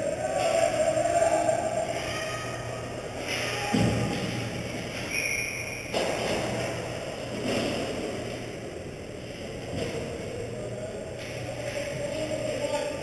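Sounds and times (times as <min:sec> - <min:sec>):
steady low hum: 0:00.0 - 0:13.0
distant hockey play noise: 0:03.2 - 0:08.3
high whistle-like tone: 0:05.0 - 0:06.0.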